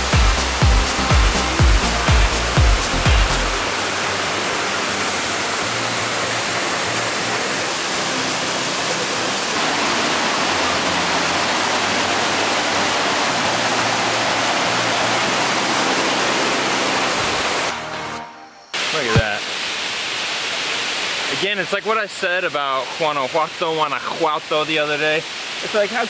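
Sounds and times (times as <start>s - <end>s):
waterfall rushing: 0.0s - 18.2s, 18.8s - 26.0s.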